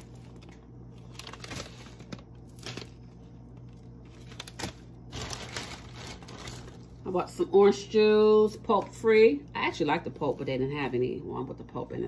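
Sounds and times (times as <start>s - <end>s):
plastic packaging crinkling: 0.0s - 7.2s
low steady hum: 0.0s - 12.0s.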